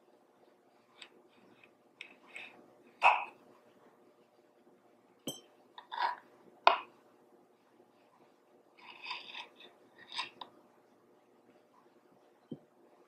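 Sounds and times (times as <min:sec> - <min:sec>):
knife scraping on cutting board: 0:08.8 - 0:10.5.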